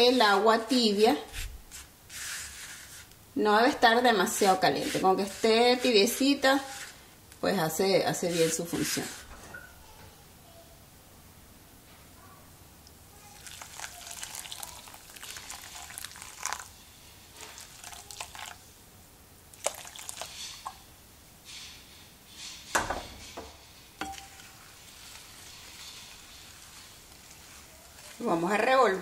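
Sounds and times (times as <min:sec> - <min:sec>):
water splashing into bowl: 0:19.6 - 0:20.8.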